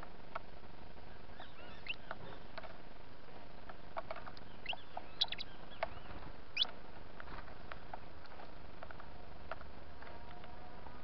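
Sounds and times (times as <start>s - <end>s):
finches chirping: 1.1s - 2.5s, 4.4s - 6.7s
beaks pecking: 1.4s - 2.8s, 3.6s - 8.5s.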